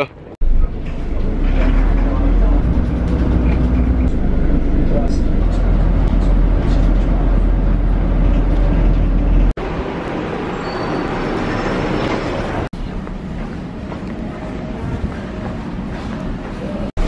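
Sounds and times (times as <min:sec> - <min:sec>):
bus engine rumble: 0:00.0 - 0:17.0.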